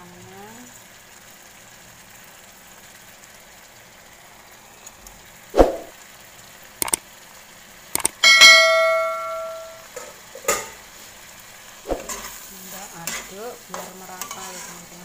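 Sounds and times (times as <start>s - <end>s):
food sizzling in a wok: 0.0s - 15.0s
mouse click sound effects: 8.0s - 8.2s.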